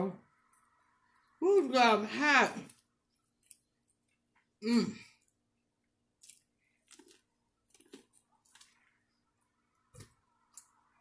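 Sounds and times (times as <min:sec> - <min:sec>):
faint chewing: 0:02.6 - 0:10.8.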